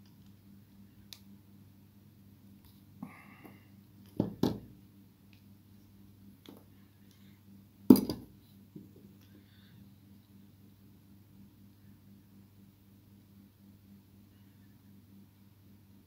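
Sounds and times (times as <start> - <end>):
steady low hum: 0.0 - 16.0
tools knocked on a workbench: 4.2 - 4.6, 7.9 - 8.3.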